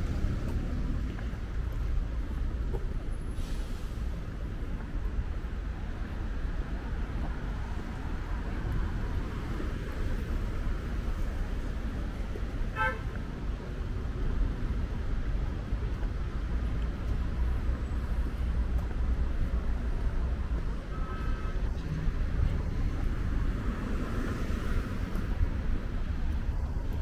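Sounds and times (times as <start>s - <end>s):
street traffic rumble: 0.0s - 27.0s
vehicle horn beep: 12.7s - 13.1s, 20.9s - 21.6s.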